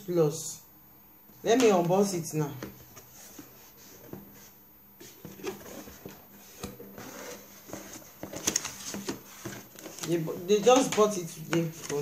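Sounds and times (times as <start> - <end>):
cardboard box scraping and rustling: 6.9 - 9.7.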